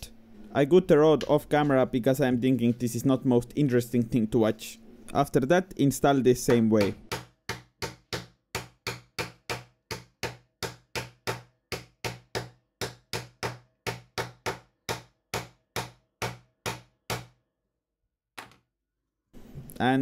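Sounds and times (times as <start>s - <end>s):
hammer knocking metal rod: 6.5s - 17.3s.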